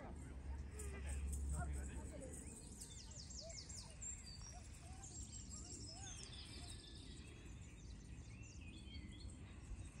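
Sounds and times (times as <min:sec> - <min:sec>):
songbirds chirping and warbling: 0:01.2 - 0:10.0.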